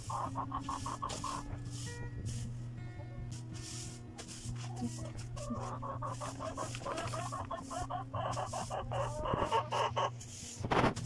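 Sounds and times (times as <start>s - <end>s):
chickens clucking: 0.0s - 2.4s, 3.0s - 11.0s
powder shaken from plastic bottle: 6.1s - 7.8s.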